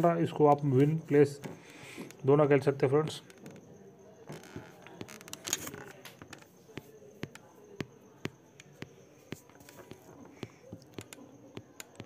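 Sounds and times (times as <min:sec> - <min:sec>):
small clicks and ticks: 0:09.5 - 0:12.0.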